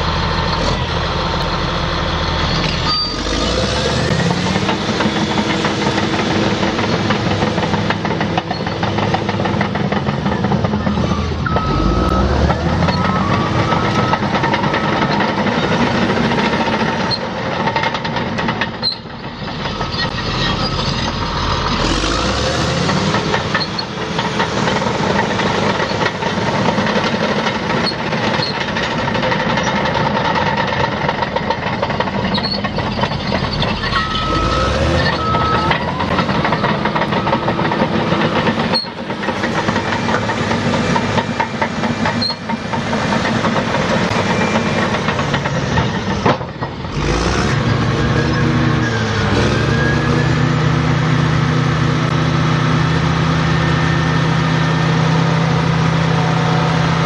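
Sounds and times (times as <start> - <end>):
clanking squeaking tracks: 0.0 - 57.0
diesel engine running: 0.0 - 57.0
reversing alarm beeps: 11.1 - 15.1, 33.9 - 39.0, 44.1 - 45.0.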